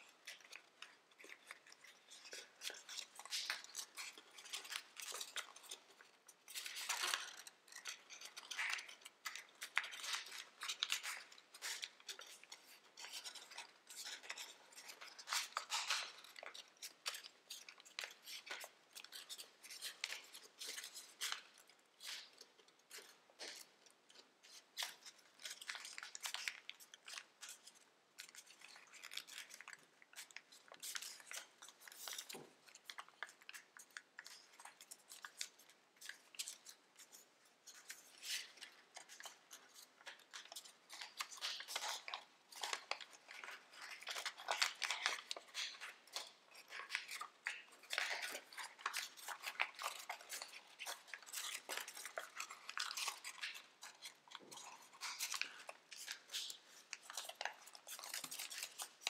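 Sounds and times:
foil paper crinkling: 37.8 - 59.0.

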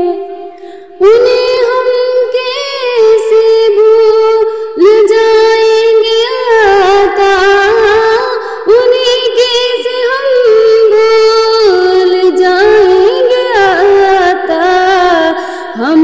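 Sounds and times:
high voice singing: 0.0 - 16.0
breath: 0.5 - 1.0, 4.4 - 4.8, 8.4 - 8.7, 15.4 - 15.8.

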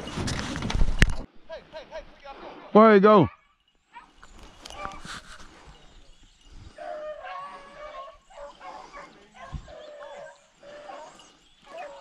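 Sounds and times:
dogs yelping and baying: 3.3 - 12.0.

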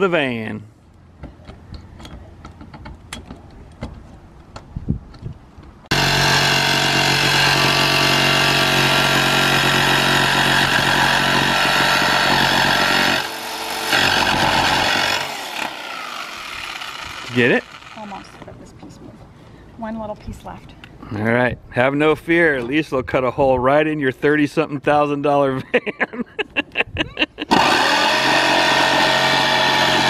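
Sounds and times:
jigsaw cutting sheet metal: 5.9 - 18.4, 27.4 - 30.0.

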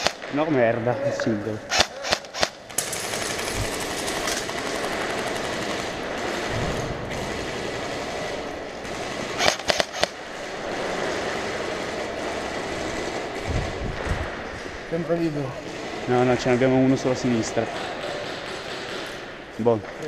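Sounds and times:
sharp loud gunshots: 0.0 - 0.9, 1.6 - 14.5, 15.6 - 19.4
airsoft guns rattling: 1.7 - 14.4.

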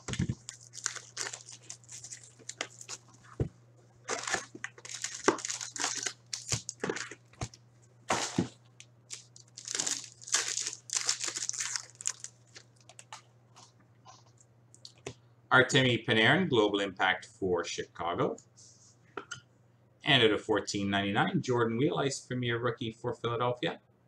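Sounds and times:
wrappers crinkling and tearing: 0.0 - 3.3, 4.0 - 13.2.

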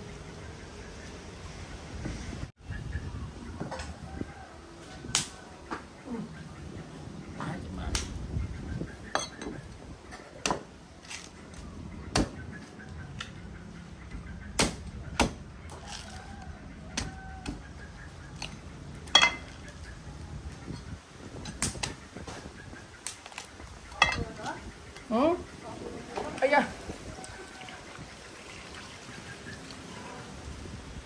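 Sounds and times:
cleaver chopping coconuts: 10.2 - 10.7, 12.1 - 12.4, 14.5 - 15.8, 17.0 - 17.6.

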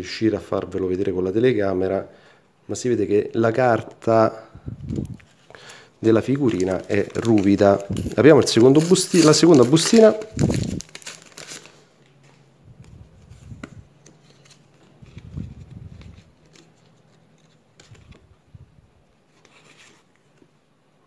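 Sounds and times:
paper sticker packet rustling: 4.8 - 18.4.

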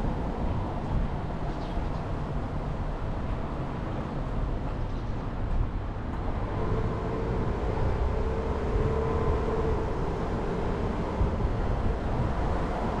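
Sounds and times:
tyres on road: 0.0 - 13.0
car engine rumbling: 6.2 - 13.0.

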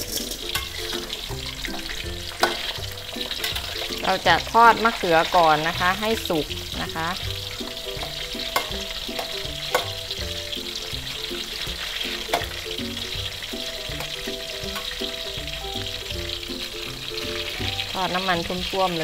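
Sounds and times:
metal spatula clinking on wok: 0.0 - 4.1, 8.0 - 10.1
eggplant deep-frying in oil: 0.0 - 19.0.

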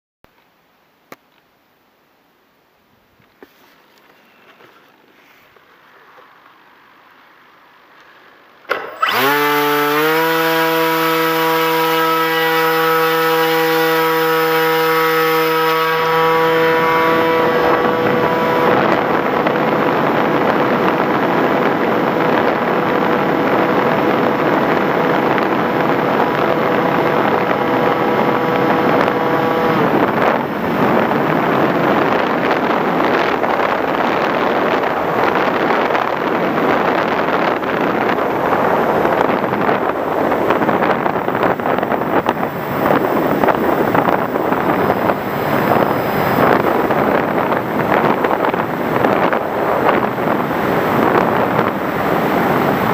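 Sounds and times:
electric motor propeller whine: 8.7 - 34.2, 36.6 - 52.9
wind rush on microphone: 8.7 - 52.9.

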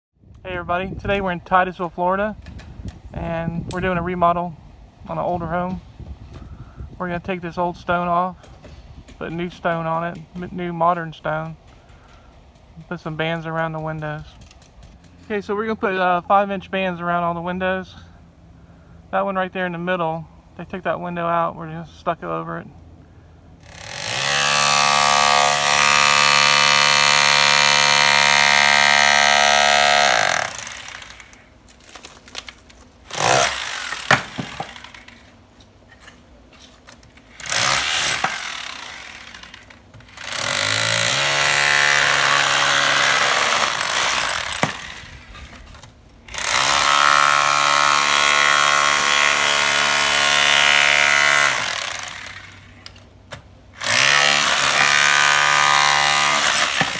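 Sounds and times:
rotary hammer chiseling stone: 23.6 - 31.4, 37.4 - 45.0, 46.3 - 52.4, 53.8 - 56.9.

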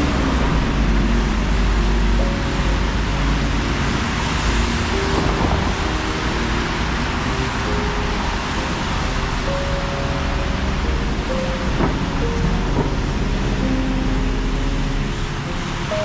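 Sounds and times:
city street traffic noise: 0.0 - 16.0.

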